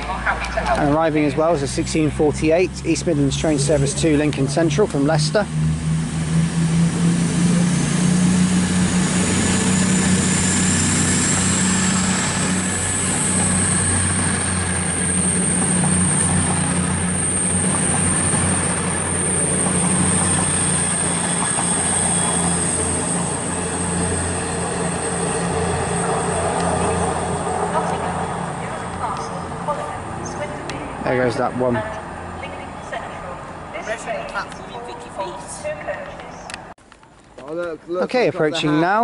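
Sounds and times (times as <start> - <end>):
diesel train engine drone: 0.0 - 36.8
rail noise: 0.0 - 37.8
thin high whine: 4.9 - 30.4.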